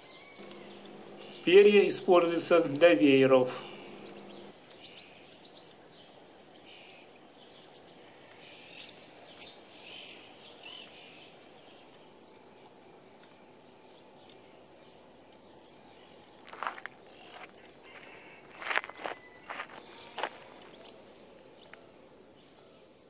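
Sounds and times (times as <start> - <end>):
low outdoor noise: 0.0 - 23.0
small birds chirping: 0.0 - 23.0.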